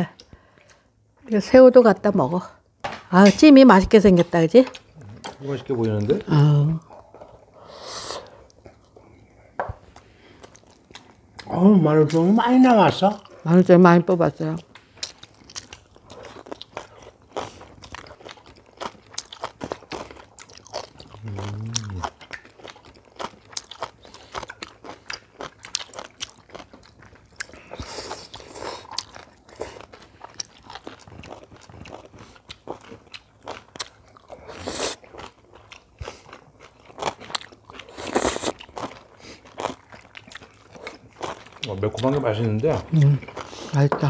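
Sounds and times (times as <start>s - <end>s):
chewing crisp food: 9.9s - 12.4s, 14.6s - 44.0s.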